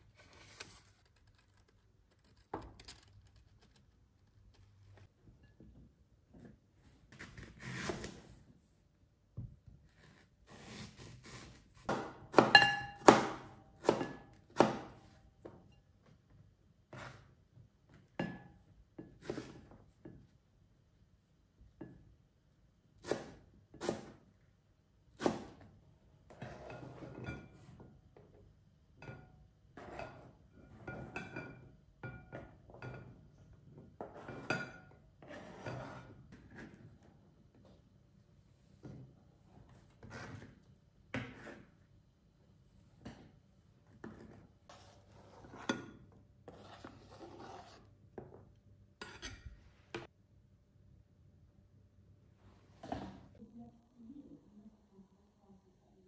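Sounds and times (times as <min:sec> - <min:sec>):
knife clinking against bowl: 0:12.5 - 0:13.0.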